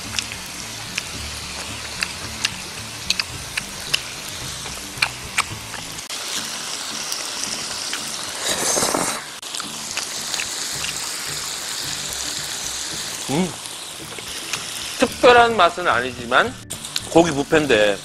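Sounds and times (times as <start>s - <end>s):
meat sizzling on grill plate: 0.0s - 18.0s
person slurping noodles: 8.2s - 9.4s.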